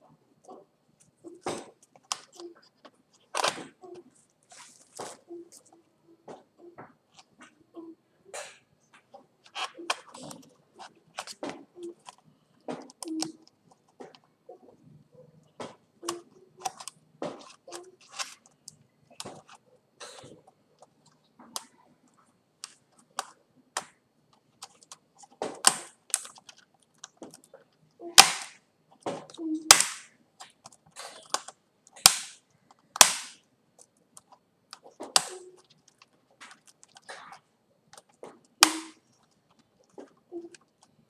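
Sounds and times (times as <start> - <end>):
loud sharp plastic snaps: 28.2 - 28.6, 29.7 - 33.4, 34.7 - 37.0, 37.9 - 39.0.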